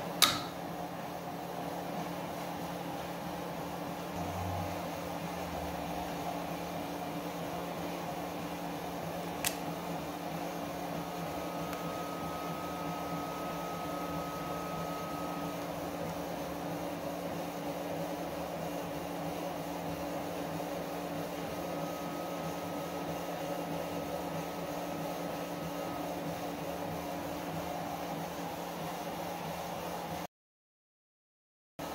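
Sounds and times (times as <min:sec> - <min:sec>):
steady mechanical hum: 0:00.0 - 0:30.3
sharp click: 0:00.2 - 0:00.6.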